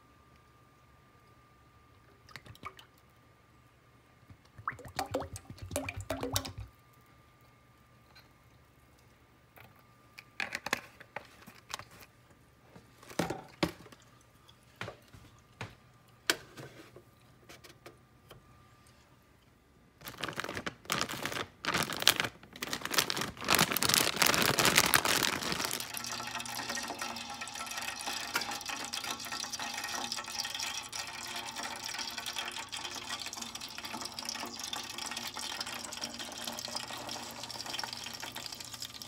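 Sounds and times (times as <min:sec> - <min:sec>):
plastic bag crinkling: 0:20.0 - 0:26.7.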